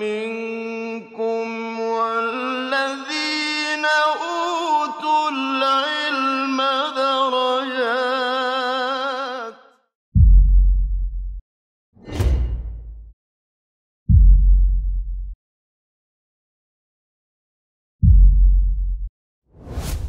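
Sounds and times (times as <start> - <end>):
vocal chant of long held notes: 0.0 - 9.8.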